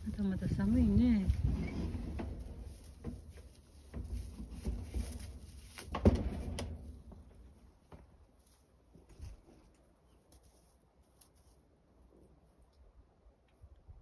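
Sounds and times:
light knocks and bumps: 0.9s - 9.7s.

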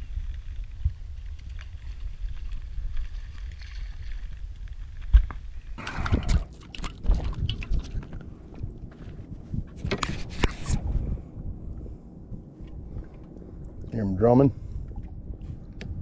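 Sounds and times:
wind rumbling on microphone: 0.0s - 16.0s
water lapping against boat: 5.8s - 8.8s.

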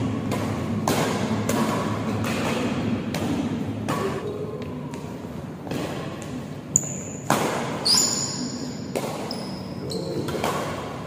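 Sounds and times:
rackets hitting shuttlecock: 0.0s - 11.0s
high-pitched squeak: 7.8s - 8.6s.

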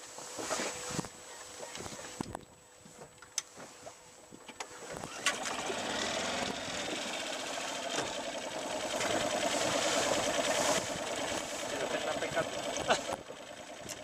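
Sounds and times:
small motor whirring: 4.9s - 14.0s.

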